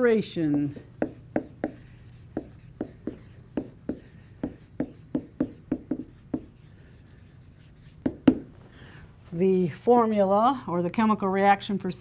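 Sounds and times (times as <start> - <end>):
pen tapping on writing surface: 2.4 - 6.5, 8.0 - 8.5.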